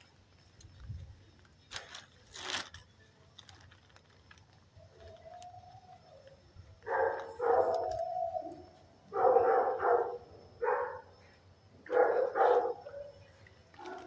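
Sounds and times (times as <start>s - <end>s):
dog barking: 6.8s - 8.5s, 9.1s - 11.1s, 11.8s - 13.2s, 13.8s - 14.0s.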